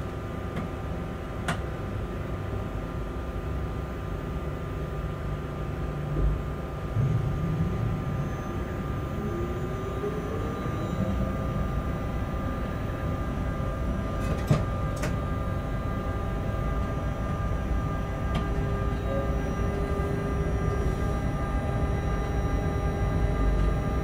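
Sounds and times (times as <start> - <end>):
rising whine: 4.8 - 24.0
locomotive cab rumble: 5.8 - 24.0.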